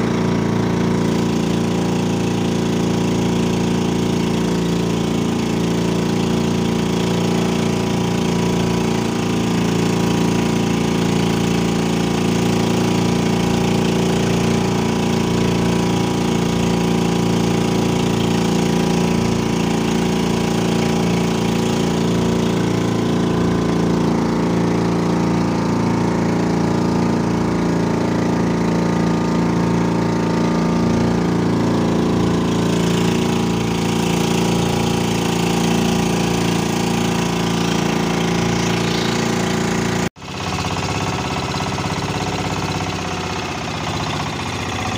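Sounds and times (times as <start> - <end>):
boat engine droning: 0.0 - 44.9.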